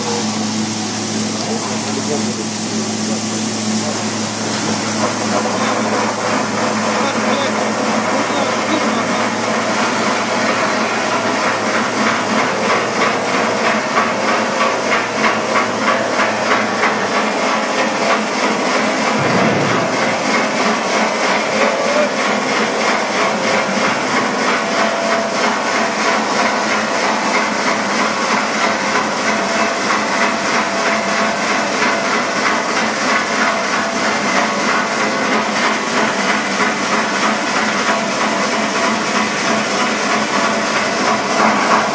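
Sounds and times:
pulsing spray hiss: 0:00.0 - 0:24.6
low thump: 0:19.2 - 0:20.1.

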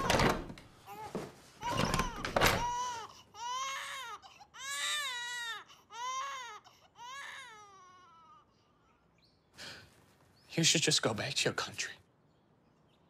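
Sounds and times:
infant crying: 0:00.8 - 0:09.1.

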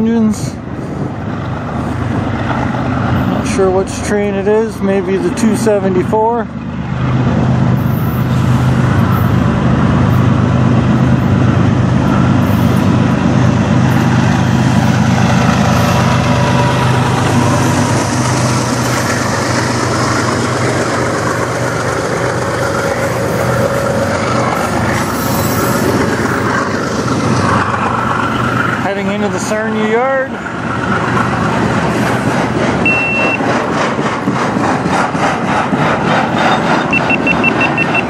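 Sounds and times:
diesel locomotive engines droning: 0:00.0 - 0:38.0
freight cars rolling on rails: 0:00.0 - 0:38.0.

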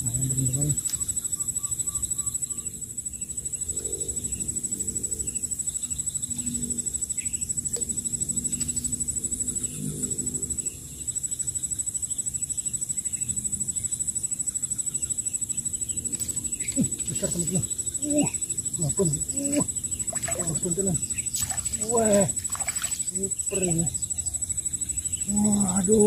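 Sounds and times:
high-pitched insect drone: 0:00.0 - 0:26.0
low cooing calls: 0:16.4 - 0:24.5.

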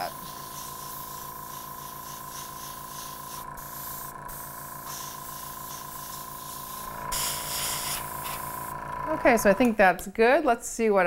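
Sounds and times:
airbrush spraying hiss: 0:00.0 - 0:08.7
compressor pulsing hum: 0:00.0 - 0:10.9.

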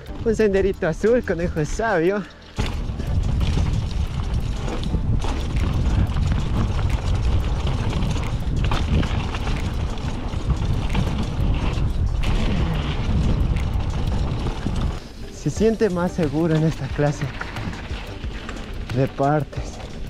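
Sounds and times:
bike chain rattling and clicking: 0:00.0 - 0:20.0
wind buffeting microphone: 0:00.0 - 0:20.0.

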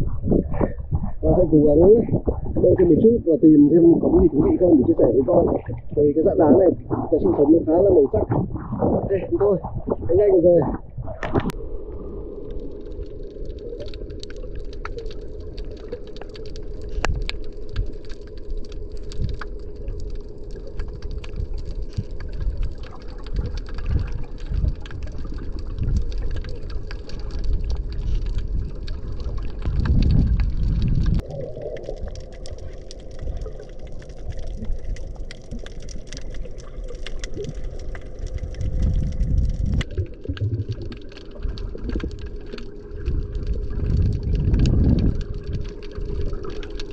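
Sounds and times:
steady low hum: 0:00.0 - 0:26.0
low rumbles: 0:00.0 - 0:46.9
muffled underwater water movement: 0:00.0 - 0:46.9
crackling clicks: 0:00.6 - 0:46.9.

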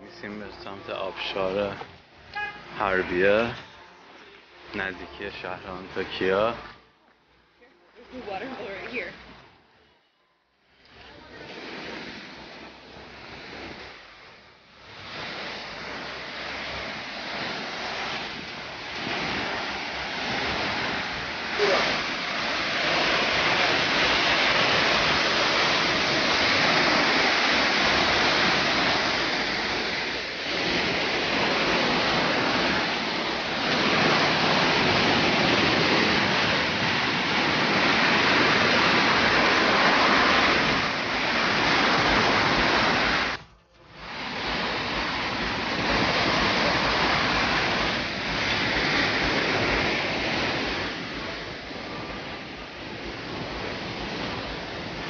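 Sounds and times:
waterfall rushing: 0:02.5 - 0:03.8, 0:04.6 - 0:06.7, 0:14.8 - 0:43.4, 0:44.0 - 0:55.0.

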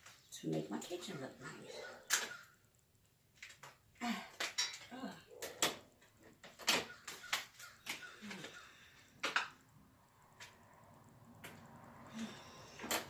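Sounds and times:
hard objects clinking: 0:03.4 - 0:08.6.

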